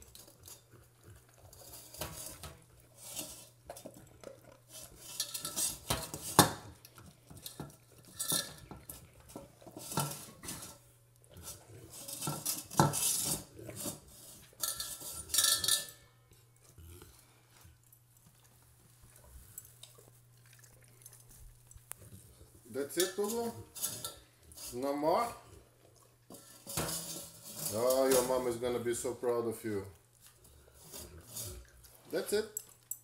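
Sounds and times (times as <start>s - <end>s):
metal bowl rattling on floor: 4.7s - 10.8s, 11.4s - 16.1s, 22.8s - 25.3s, 26.3s - 29.1s
dog licking food: 16.3s - 23.5s.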